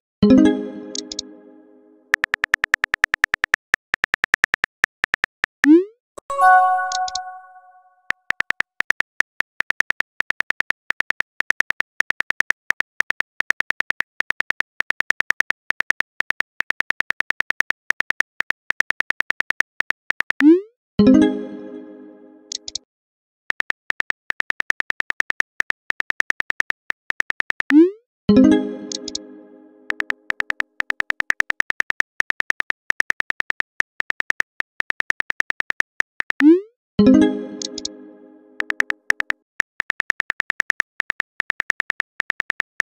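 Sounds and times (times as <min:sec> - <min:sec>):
keyboard tap clicks: 0:00.9 - 0:01.2, 0:06.8 - 0:07.4, 0:28.9 - 0:29.2, 0:37.6 - 0:37.9
phone keyboard typing clicks: 0:00.9 - 0:01.2, 0:06.5 - 0:07.6, 0:22.5 - 0:22.8, 0:28.9 - 0:29.2, 0:29.9 - 0:36.5, 0:37.6 - 0:37.9, 0:38.6 - 0:42.9
pitched chime: 0:06.2 - 0:07.8.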